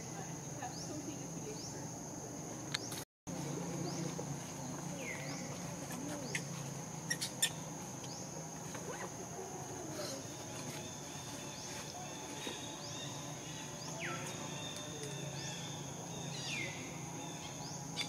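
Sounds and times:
insect drone: 0:00.0 - 0:18.0.

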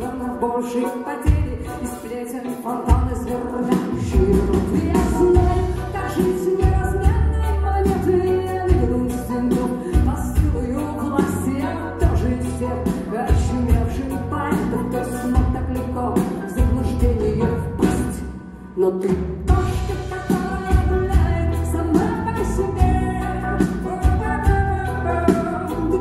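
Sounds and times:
electric guitar: 0:00.0 - 0:26.0
keyboards: 0:00.0 - 0:26.0
woman singing lead: 0:00.0 - 0:26.0
steady drum beat: 0:02.9 - 0:18.2, 0:19.1 - 0:26.0
deep bass line: 0:04.2 - 0:18.2, 0:19.5 - 0:26.0.

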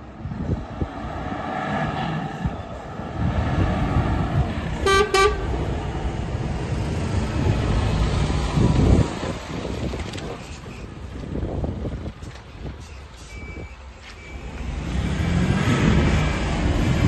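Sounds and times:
truck diesel engine: 0:00.0 - 0:17.0
truck horn toots: 0:04.8 - 0:05.6.

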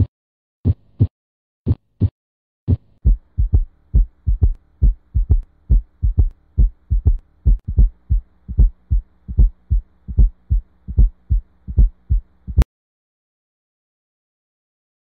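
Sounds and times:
heartbeat thumps: 0:02.7 - 0:12.7
faint steady hum: 0:02.8 - 0:12.7.

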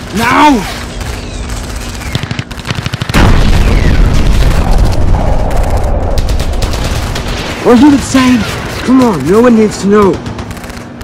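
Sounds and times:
rapid gunfire: 0:00.0 - 0:11.0
loud explosion: 0:03.1 - 0:07.6.

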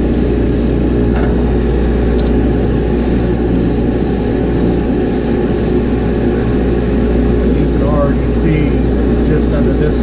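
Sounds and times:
airbrush spraying hiss: 0:00.0 - 0:00.8, 0:03.0 - 0:05.8
spray booth low hum: 0:00.0 - 0:02.1, 0:02.7 - 0:06.7.

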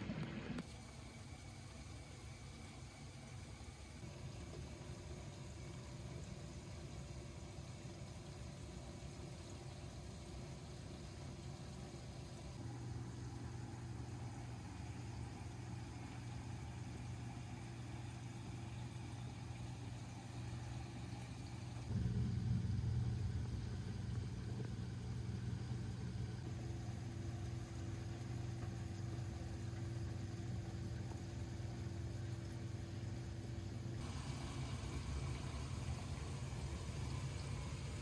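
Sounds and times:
pumps humming: 0:00.0 - 0:38.0
water flowing: 0:00.0 - 0:38.0.

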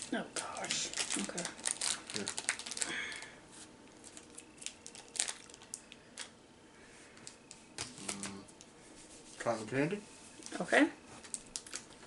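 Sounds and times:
plastic packaging crinkling: 0:00.0 - 0:06.4, 0:07.2 - 0:08.4, 0:11.2 - 0:12.0.

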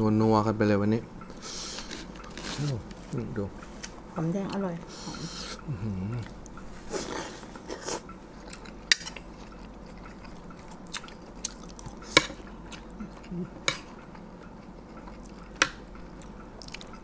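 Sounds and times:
mouths chewing: 0:03.6 - 0:17.0.

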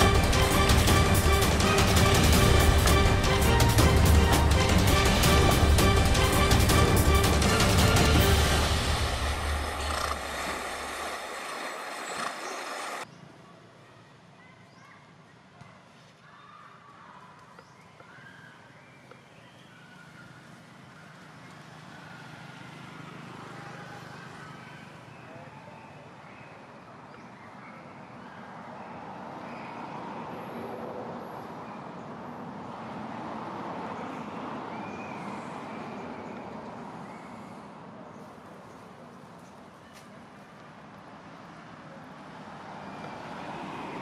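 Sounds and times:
steady rushing: 0:00.0 - 0:13.0
horses splashing through water: 0:09.4 - 0:13.0.

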